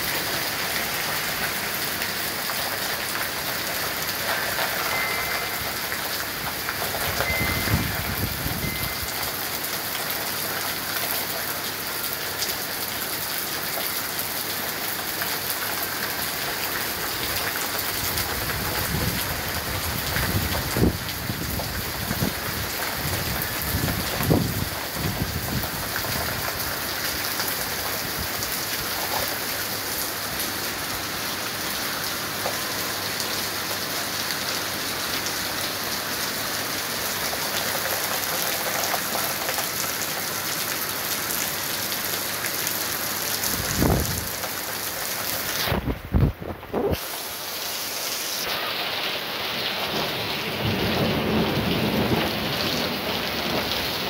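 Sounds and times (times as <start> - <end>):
heavy rain pouring: 0.0 - 54.0
thunder rumbling: 49.9 - 54.0.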